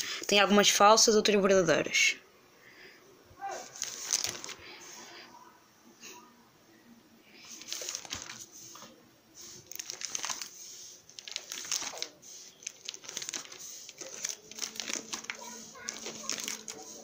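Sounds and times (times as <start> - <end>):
plastic pages crinkling: 3.6 - 5.0, 7.4 - 17.0.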